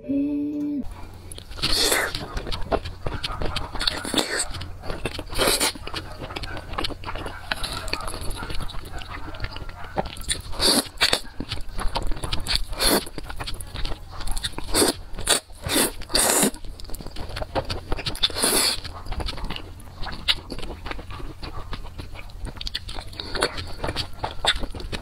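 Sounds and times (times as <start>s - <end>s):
wet chewing and lip-smacking: 0.8s - 25.0s
noodle slurping: 1.3s - 6.0s, 10.2s - 11.2s, 14.3s - 16.6s, 18.1s - 22.0s.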